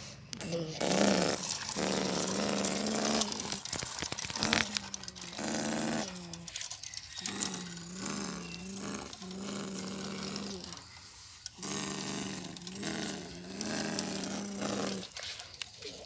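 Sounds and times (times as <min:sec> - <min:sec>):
toy truck pushed over dirt: 0:00.0 - 0:16.0
person imitating truck engine: 0:00.3 - 0:03.7, 0:04.4 - 0:06.5, 0:07.2 - 0:10.8.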